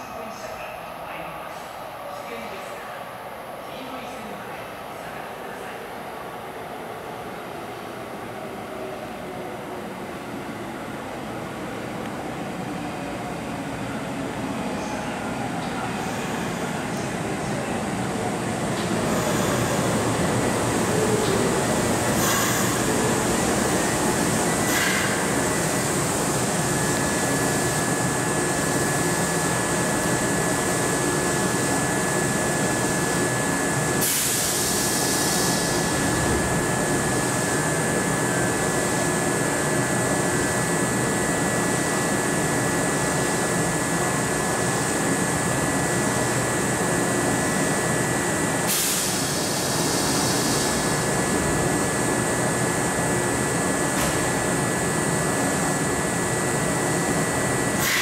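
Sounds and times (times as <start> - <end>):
train equipment humming: 6.4 - 58.0
short air hisses: 57.8 - 58.0.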